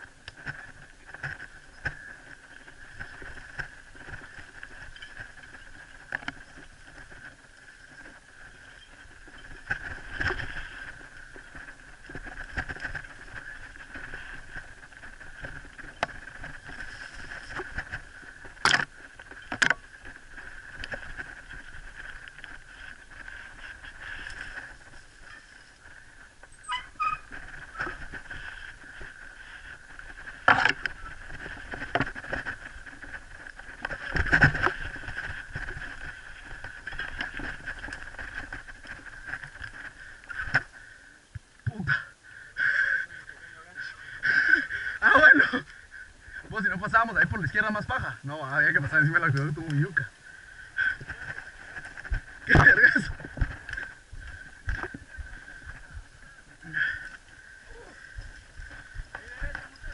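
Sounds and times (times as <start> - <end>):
bike rattle and brush rustle: 0.0 - 41.7, 43.2 - 59.9.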